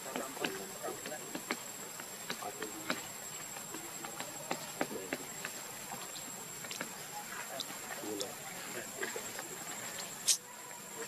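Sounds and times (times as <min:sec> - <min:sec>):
insect hiss with high tone: 0:00.0 - 0:11.0
sharp ticks and clicks: 0:00.1 - 0:08.3.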